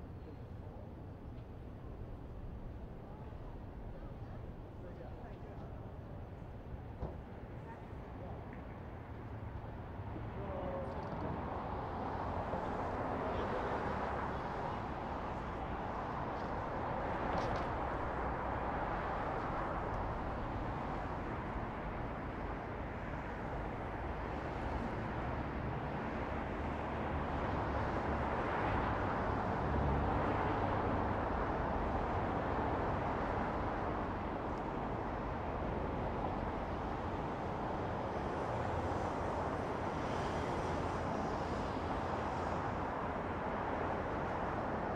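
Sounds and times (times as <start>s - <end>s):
distant traffic hum: 0.0s - 44.9s.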